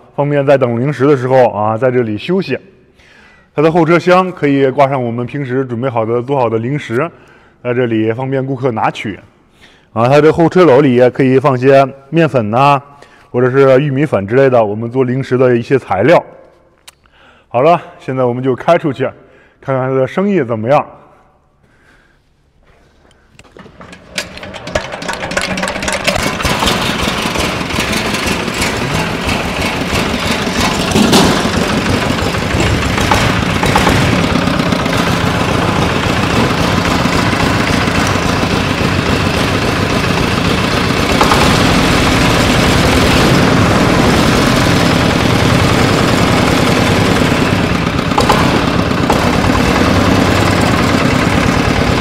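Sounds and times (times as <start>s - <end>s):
diesel engine running: 23.6s - 52.0s.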